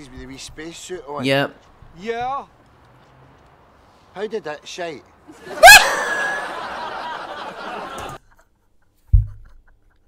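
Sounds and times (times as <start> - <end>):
person laughing with whoop: 5.5 - 6.8
dull thump: 9.1 - 9.6.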